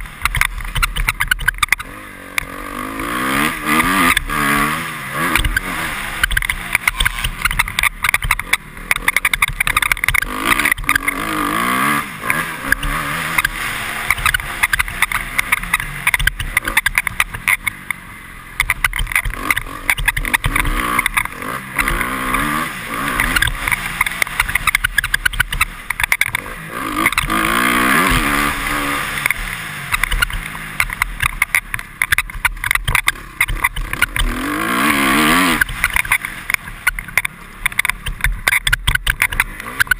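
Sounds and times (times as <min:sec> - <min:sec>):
motorcycle engine revving: 0:00.0 - 0:39.9
helmet visor clicks and squeaks: 0:00.2 - 0:01.9, 0:06.2 - 0:11.3, 0:12.7 - 0:18.0, 0:18.6 - 0:22.4, 0:23.2 - 0:26.4, 0:29.2 - 0:34.3, 0:35.2 - 0:39.9.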